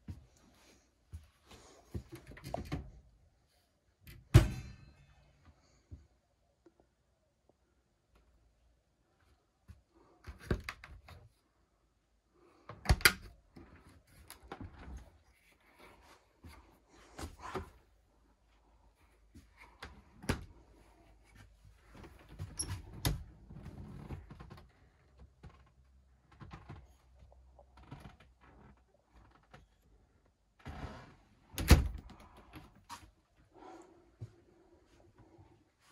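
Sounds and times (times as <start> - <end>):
cabinet doors opening and shutting: 30.6 - 32.3.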